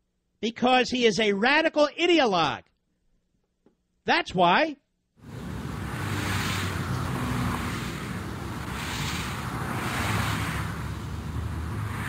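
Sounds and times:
road traffic rumble: 5.2 - 12.0.

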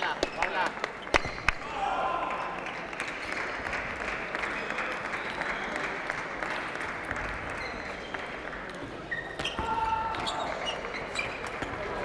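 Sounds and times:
crowd applauding: 0.2 - 8.4.

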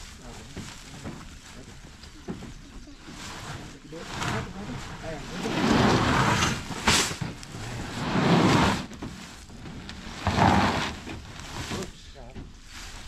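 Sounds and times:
sacks scraping across truck bed: 0.0 - 13.0.

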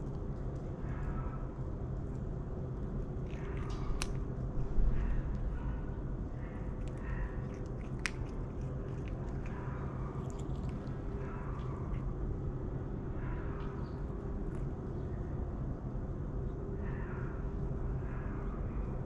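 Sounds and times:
steady low hum: 0.0 - 19.0
cat chewing food crunches: 2.0 - 5.5, 6.5 - 12.6.

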